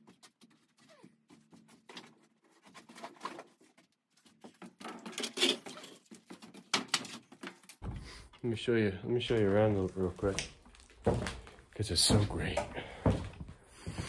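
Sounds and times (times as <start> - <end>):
footsteps on wooden floorboards: 7.8 - 8.3, 9.2 - 14.0.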